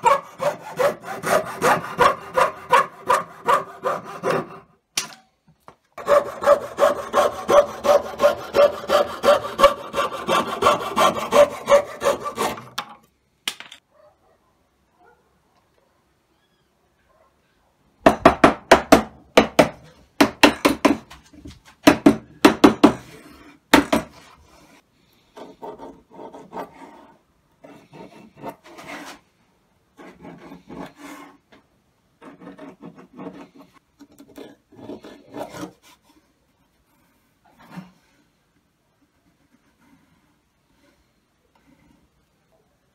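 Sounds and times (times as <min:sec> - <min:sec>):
pencil scratching on wood: 0:00.0 - 0:04.7, 0:06.0 - 0:12.7, 0:25.4 - 0:29.2, 0:30.0 - 0:31.4, 0:32.2 - 0:36.2.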